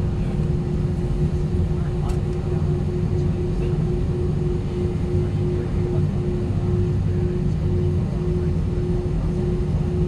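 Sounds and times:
airplane cabin rumble: 0:00.0 - 0:10.0
pulsing hum tone: 0:00.0 - 0:10.0.

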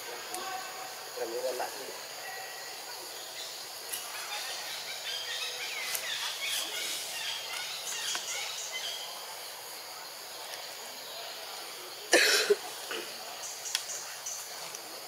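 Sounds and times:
high background hiss: 0:00.0 - 0:15.0
person coughing: 0:12.1 - 0:12.6.

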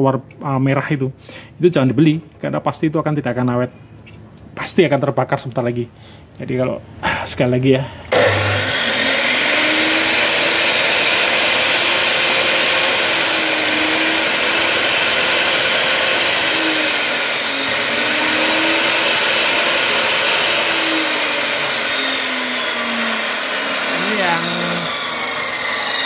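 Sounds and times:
chop saw motor running: 0:08.1 - 0:26.0.

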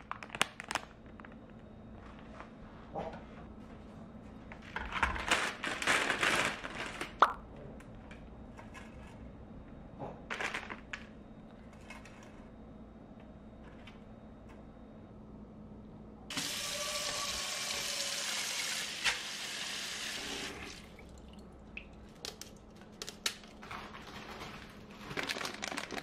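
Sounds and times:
plastic packaging crinkling: 0:00.0 - 0:02.3, 0:04.7 - 0:07.4, 0:10.3 - 0:11.1, 0:22.1 - 0:26.0.

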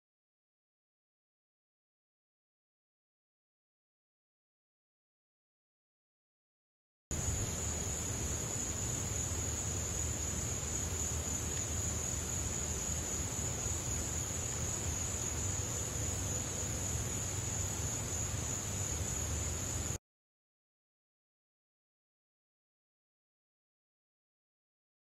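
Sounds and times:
low background hum: 0:07.1 - 0:20.0
night insects chorus: 0:07.1 - 0:20.0.

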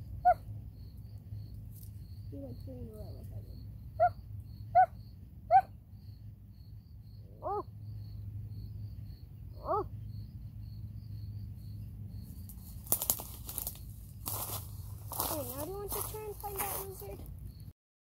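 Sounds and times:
crickets chirping: 0:00.0 - 0:17.8
footstep on dry grass: 0:12.3 - 0:17.3.

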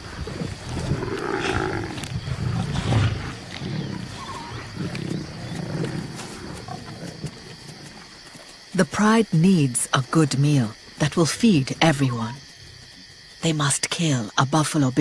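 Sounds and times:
lions growling: 0:00.0 - 0:08.2.

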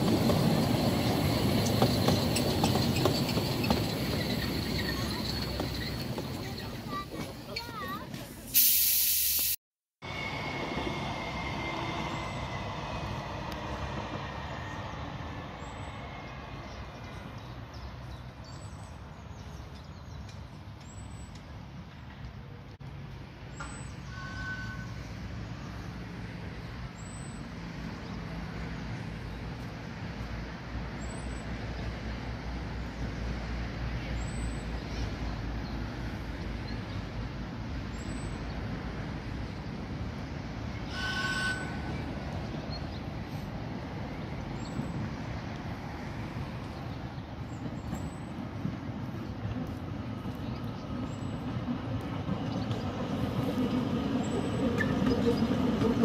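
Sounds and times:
low rumble of vehicles: 0:00.0 - 0:08.5.

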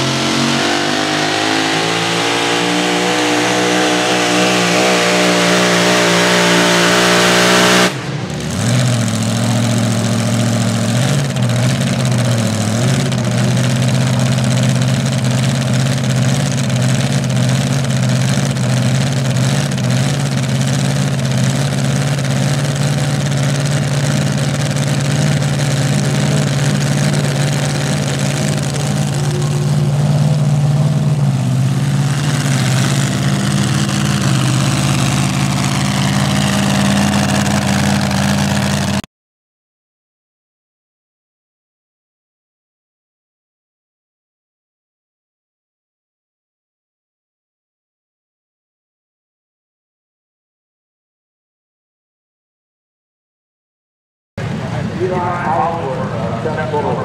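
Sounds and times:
engine revving hard: 0:00.0 - 0:17.0, 0:17.9 - 0:39.1
engine idling: 0:07.9 - 0:39.0, 0:54.4 - 0:57.0.

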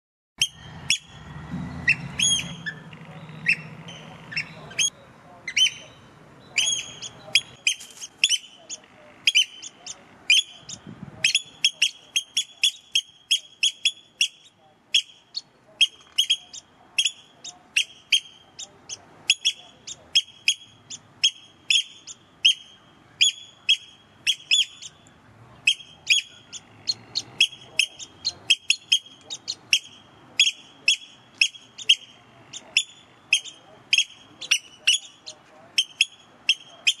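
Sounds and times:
oystercatchers piping calls: 0:00.4 - 0:37.0.

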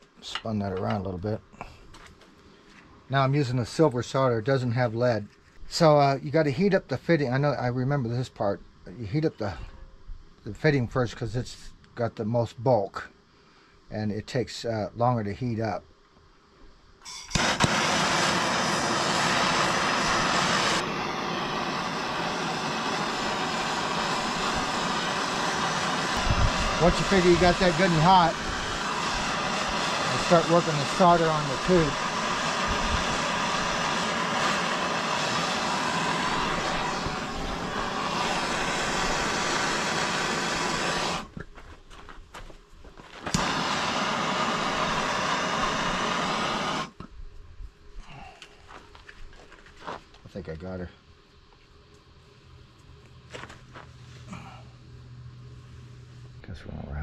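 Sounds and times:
gas torch clicking alight: 0:17.0 - 0:41.5, 0:43.2 - 0:47.1
gas torch hissing: 0:17.0 - 0:41.5, 0:43.2 - 0:47.1.

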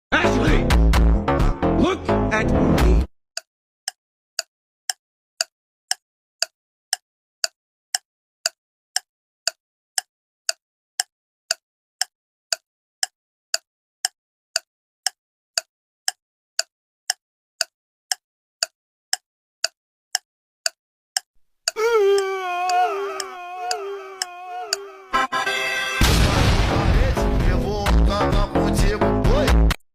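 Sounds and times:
pitched tick sound effect: 0:03.4 - 0:21.3, 0:22.2 - 0:24.9
music with singing: 0:22.0 - 0:26.0, 0:26.8 - 0:29.8.

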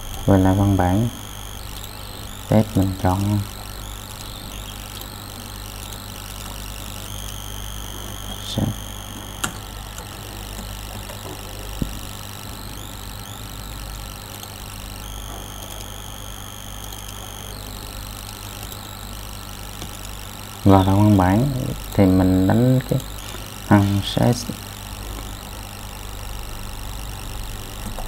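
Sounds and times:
sharp clicks: 0:00.0 - 0:19.1, 0:19.7 - 0:20.6
electrical hum: 0:00.0 - 0:28.0
high whine: 0:00.0 - 0:28.0.

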